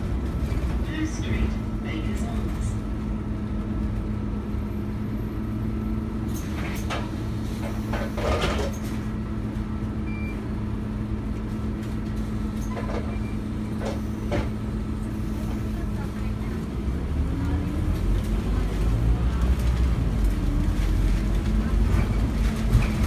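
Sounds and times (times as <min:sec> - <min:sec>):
bus engine idling hum: 0:00.0 - 0:23.0
clatters and rustles: 0:06.3 - 0:09.1, 0:17.9 - 0:23.0.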